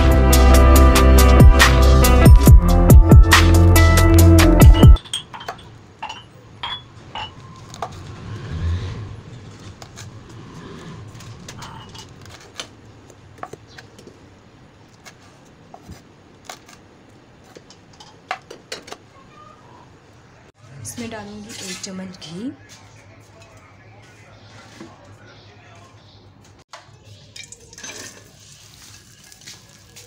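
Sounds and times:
electronic background music: 0.0s - 5.0s.

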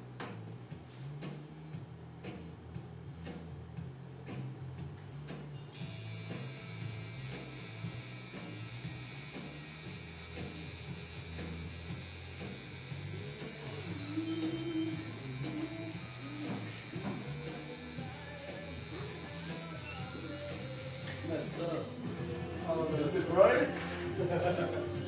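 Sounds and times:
quiet background music: 0.0s - 25.0s
tattoo machine buzzing: 5.7s - 21.8s, 24.3s - 24.8s.

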